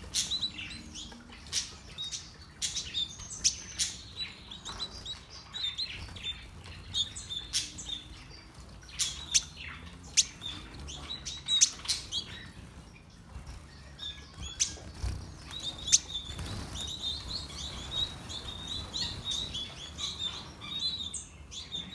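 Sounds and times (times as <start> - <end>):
finches chirping: 0.0 - 21.9
wing flutters: 13.3 - 20.2.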